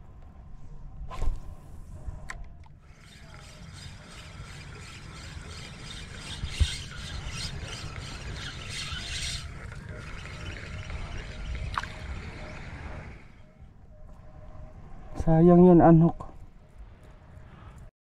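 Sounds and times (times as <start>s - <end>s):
fishing reel whirring: 2.8s - 13.4s.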